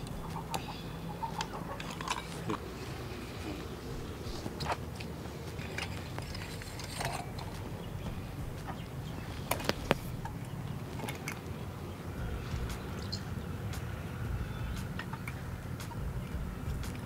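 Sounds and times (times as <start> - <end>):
low steady rumble: 0.0 - 17.0
sharp clicks: 4.4 - 11.6.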